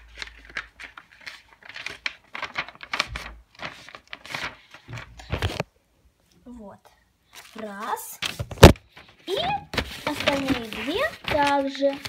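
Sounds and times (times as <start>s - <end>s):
paper rustling and crinkling: 0.0s - 5.7s, 7.3s - 12.0s.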